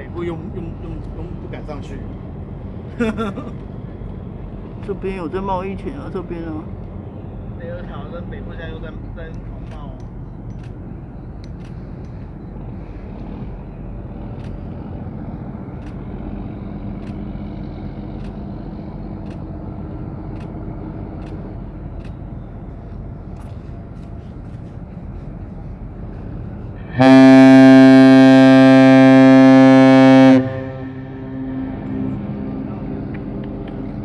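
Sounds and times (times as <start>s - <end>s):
low background rumble: 0.0s - 34.0s
ship's whistle blast: 26.8s - 31.5s.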